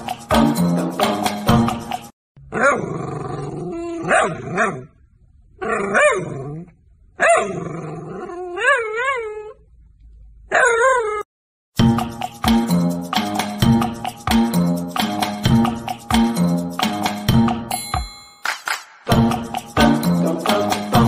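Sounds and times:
dog whining and grumbling: 0:02.5 - 0:04.9, 0:05.6 - 0:09.7, 0:10.5 - 0:11.3.

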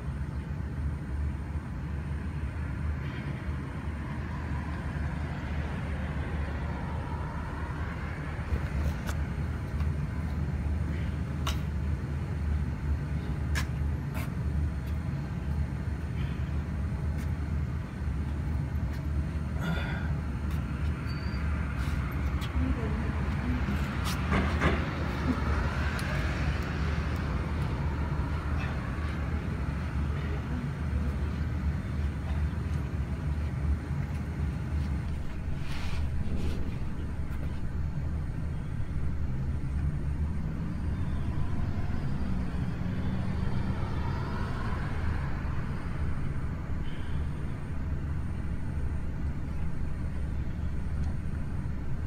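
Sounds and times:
low outdoor rumble: 0:00.0 - 0:52.0
vehicle passing by: 0:34.8 - 0:52.0.

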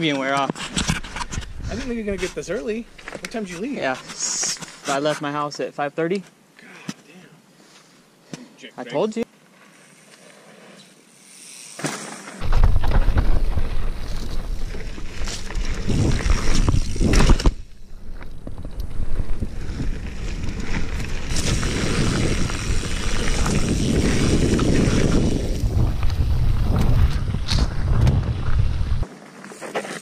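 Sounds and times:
wind buffeting microphone: 0:01.2 - 0:02.9, 0:12.4 - 0:29.1
mountain bike rattling on dirt trail: 0:09.5 - 0:30.0.

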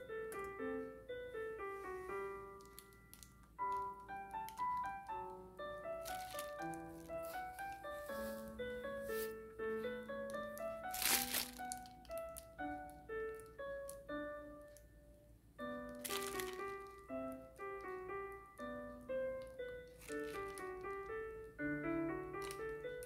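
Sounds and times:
gentle piano music: 0:00.0 - 0:23.0.

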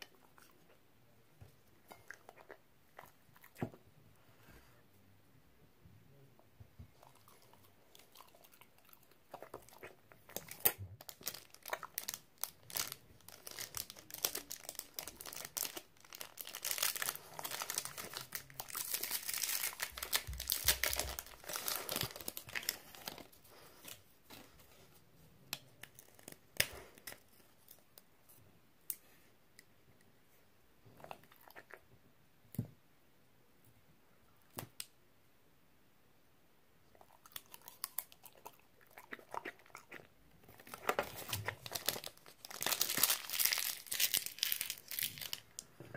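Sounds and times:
dog treat crunching and tearing: 0:07.1 - 0:23.9, 0:37.2 - 0:45.5.

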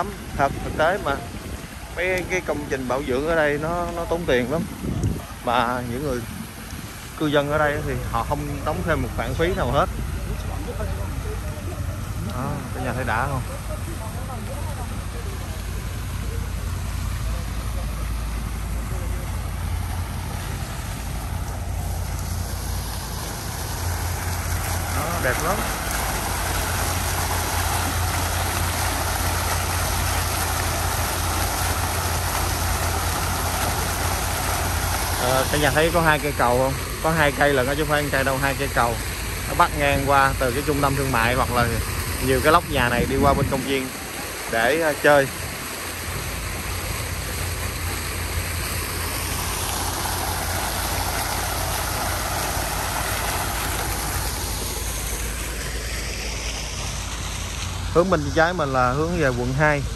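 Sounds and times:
low hum: 0:00.0 - 0:44.5
fountain water splashing: 0:00.0 - 0:59.9
low steady rumble: 0:00.0 - 0:59.9.

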